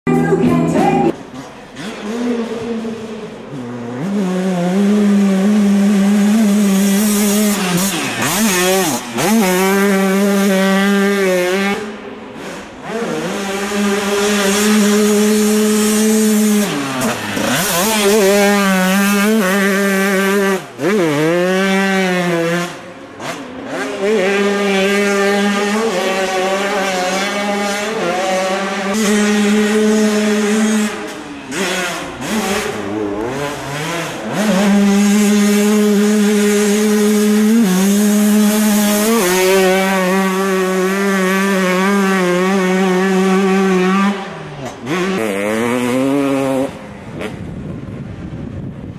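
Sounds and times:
motocross bike engines revving: 0.1s - 48.3s.

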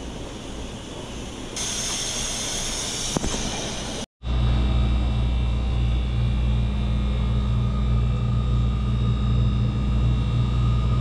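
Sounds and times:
low machine hum: 3.5s - 11.0s.

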